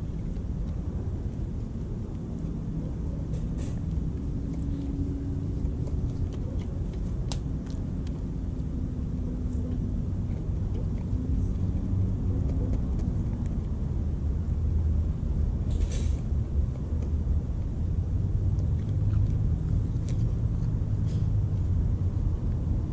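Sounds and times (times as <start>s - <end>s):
faint clicks of animal eating: 0.0s - 8.7s, 9.4s - 13.8s, 16.1s - 17.7s, 18.5s - 21.7s
distant road traffic rumble: 0.0s - 22.9s
faint droning hum: 0.0s - 22.9s.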